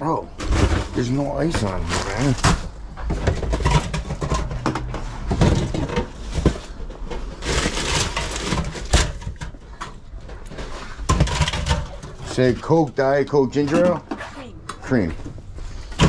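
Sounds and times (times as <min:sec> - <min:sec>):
rustling: 0:00.3 - 0:12.7.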